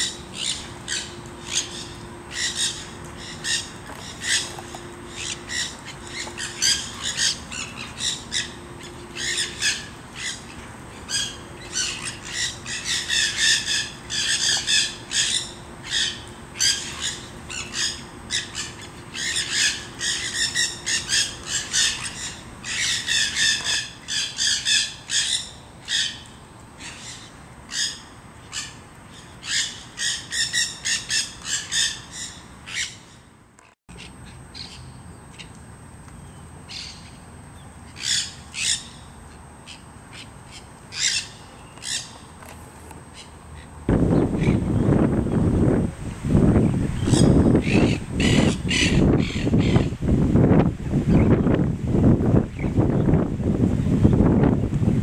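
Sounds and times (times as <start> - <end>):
parakeets squawking: 0.0 - 33.1, 38.0 - 39.0, 39.7 - 42.2, 43.1 - 45.0, 46.9 - 50.0
faint hum: 0.0 - 55.0.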